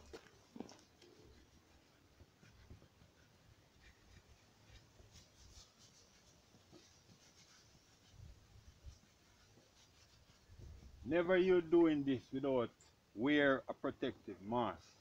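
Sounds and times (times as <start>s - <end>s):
paintbrush scratching on wood: 1.3s - 12.4s.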